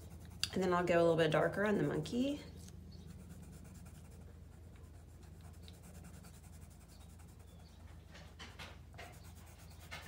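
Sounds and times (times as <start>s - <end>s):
pencil scratching on paper: 0.0s - 0.4s, 3.1s - 7.8s, 8.9s - 10.0s
low steady hum: 0.0s - 10.0s.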